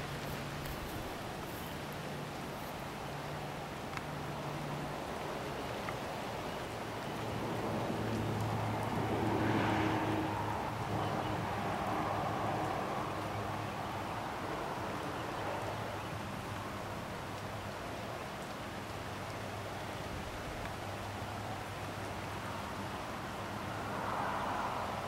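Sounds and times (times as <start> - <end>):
rain hissing: 0.0 - 25.0
passing engine drone: 8.5 - 12.8.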